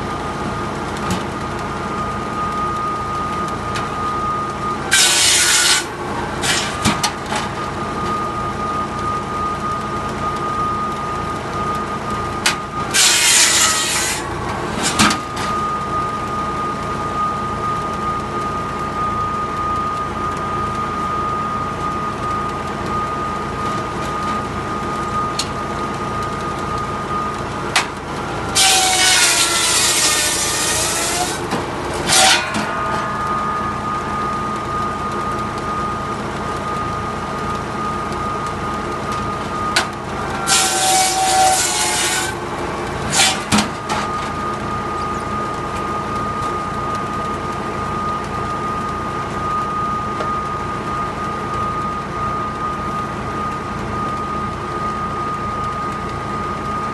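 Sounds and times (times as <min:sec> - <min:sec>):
tractor engine running: 0:00.0 - 0:56.9
saw blade whining: 0:01.5 - 0:55.7
saw rasping through logs: 0:04.9 - 0:06.8, 0:12.9 - 0:15.2, 0:28.5 - 0:33.1, 0:40.4 - 0:42.4, 0:43.0 - 0:44.1.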